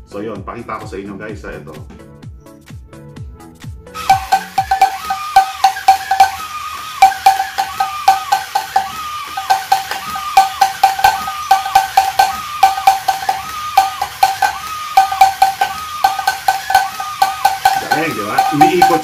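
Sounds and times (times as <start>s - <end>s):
toy drum strikes: 4.0s - 19.0s
toy mechanism whine: 4.0s - 19.0s.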